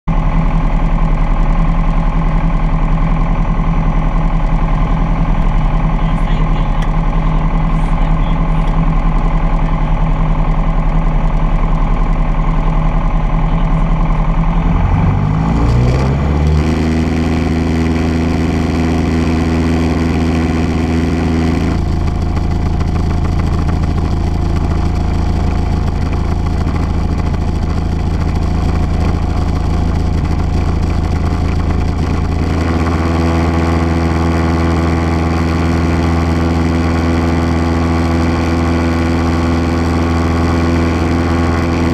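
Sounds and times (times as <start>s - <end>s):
light aircraft engine from cabin: 16.7s - 41.9s.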